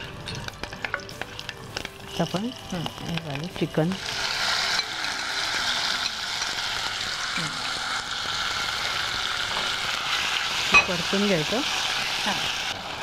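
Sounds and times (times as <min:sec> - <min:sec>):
chicken sizzling in hot oil: 0:00.0 - 0:13.0.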